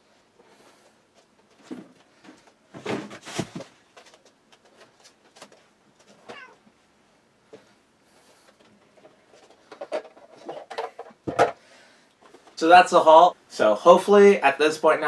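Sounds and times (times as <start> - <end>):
cat meowing: 6.2 - 6.7.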